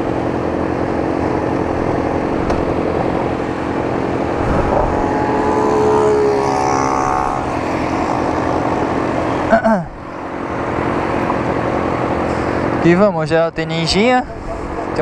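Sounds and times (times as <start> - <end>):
motorcycle engines idling: 5.0 - 12.8.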